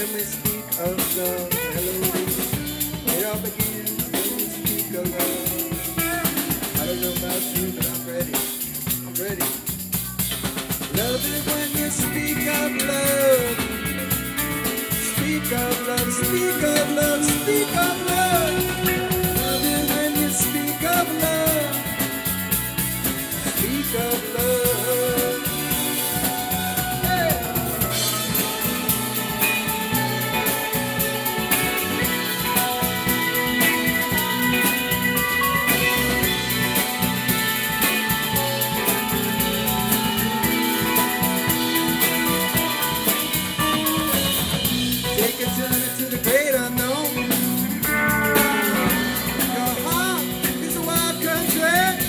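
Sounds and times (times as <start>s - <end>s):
rock band playing: 0.0s - 52.0s
lead guitar bending notes: 11.9s - 45.2s, 47.1s - 51.3s.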